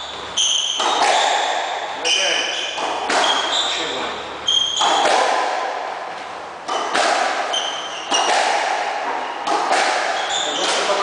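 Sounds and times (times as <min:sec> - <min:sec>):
squash ball cracking off walls: 0:00.8 - 0:01.8, 0:04.8 - 0:06.0, 0:06.6 - 0:11.0
shoes squeaking on wooden floor: 0:02.0 - 0:05.3, 0:06.7 - 0:08.4, 0:10.2 - 0:11.0.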